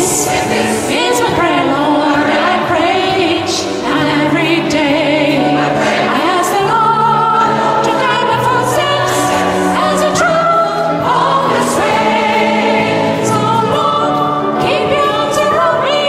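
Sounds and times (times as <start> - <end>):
gospel choir singing: 0.0 - 16.0.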